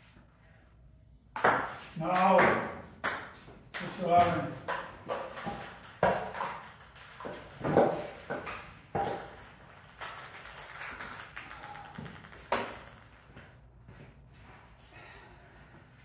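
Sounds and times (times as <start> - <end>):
table tennis ball taps: 1.4 - 13.1.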